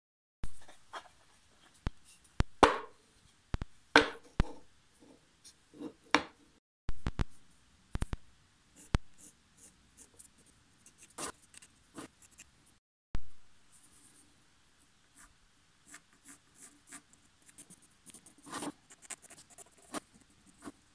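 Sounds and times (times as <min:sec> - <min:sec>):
wooden blocks knocking on workbench: 0:04.0 - 0:04.6.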